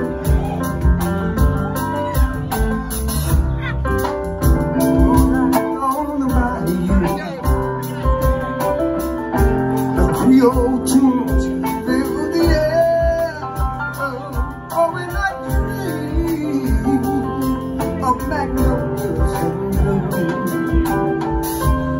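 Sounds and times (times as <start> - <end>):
electric guitar: 0.0 - 21.9
live band playing: 0.0 - 21.9
man singing: 4.4 - 21.9.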